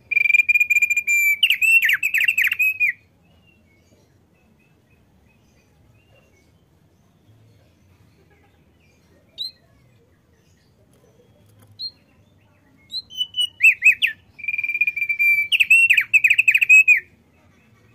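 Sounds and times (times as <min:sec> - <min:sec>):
bird singing whistles and trills: 0:00.0 - 0:06.3, 0:09.3 - 0:09.7, 0:11.3 - 0:17.1.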